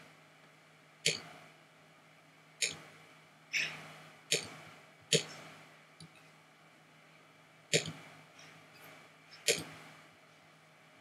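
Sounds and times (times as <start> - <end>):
computer mouse clicks: 1.1 - 1.3, 2.6 - 2.9, 4.3 - 6.2, 7.7 - 8.0, 9.4 - 9.9.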